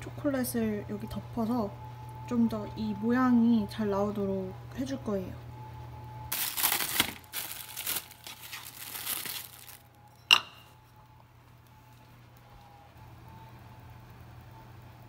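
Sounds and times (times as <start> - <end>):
packaging crinkling: 6.3 - 10.0
chocolate clinking on ceramic dish: 10.2 - 10.7.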